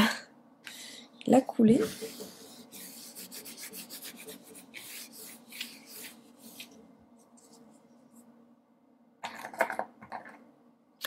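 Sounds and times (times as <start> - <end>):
scratchy rubbing strokes: 1.7 - 8.3.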